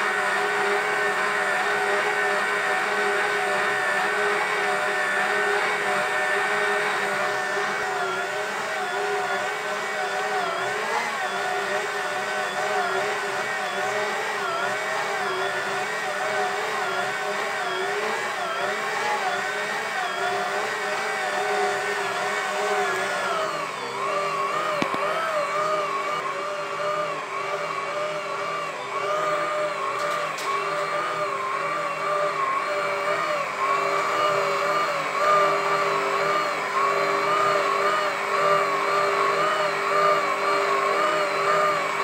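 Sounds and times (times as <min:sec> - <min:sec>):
stand mixer motor whine: 0:00.0 - 0:42.0.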